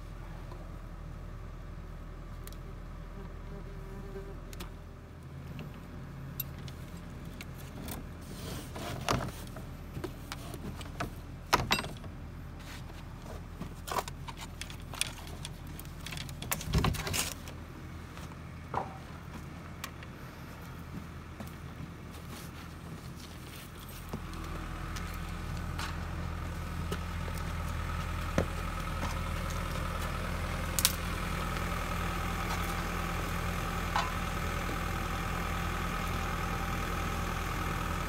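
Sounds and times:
steady low hum: 0.0s - 38.0s
knocks and clatters of handling: 8.9s - 12.1s.

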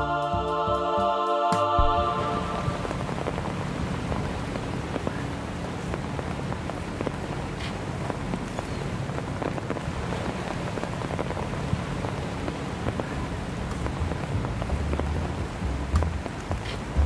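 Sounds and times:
low rumble: 1.8s - 5.1s
heavy rain patter: 1.8s - 17.0s.

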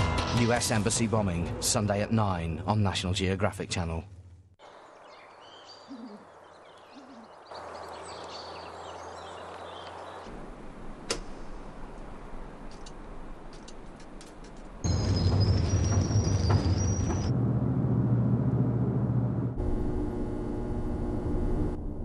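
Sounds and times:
bird chirps: 4.6s - 10.3s, 14.9s - 17.3s
low hoot-like calls: 5.5s - 7.5s.

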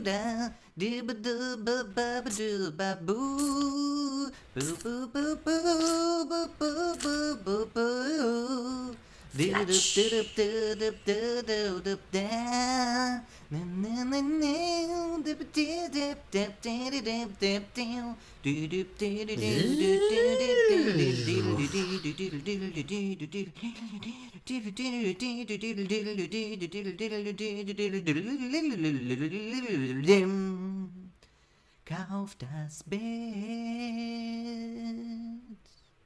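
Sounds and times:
person humming: 3.1s - 15.9s, 17.8s - 24.3s.

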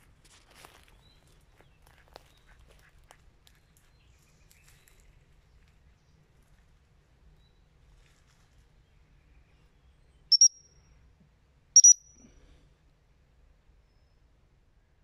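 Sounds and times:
shrill whistle blasts: 10.3s - 10.6s, 11.8s - 12.1s.

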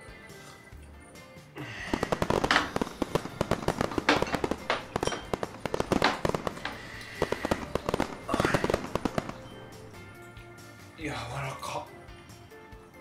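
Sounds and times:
fireworks fizzing bursts: 1.6s - 10.8s
fireworks crackling: 1.7s - 10.3s.

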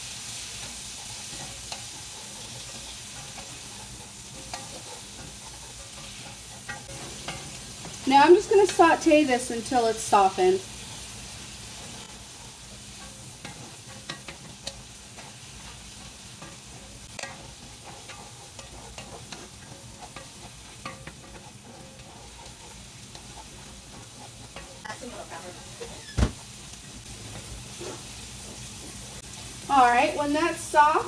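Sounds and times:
food sizzling in a skillet: 0.0s - 31.0s
wooden utensil scraping a pan: 0.2s - 26.5s, 27.2s - 30.3s.

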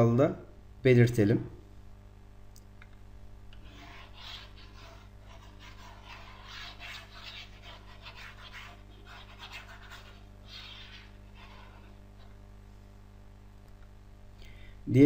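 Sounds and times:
low electrical hum: 0.0s - 15.0s
chalkboard eraser brushing: 3.6s - 12.5s.

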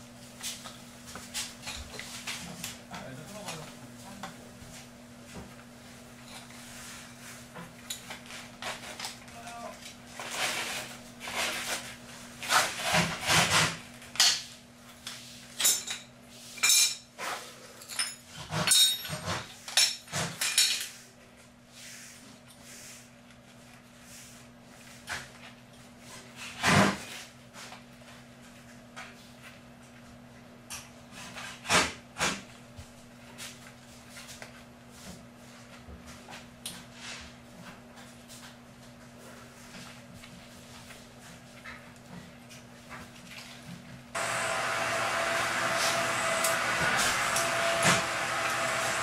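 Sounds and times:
metal tools clinking and knocking: 17.8s - 19.2s.

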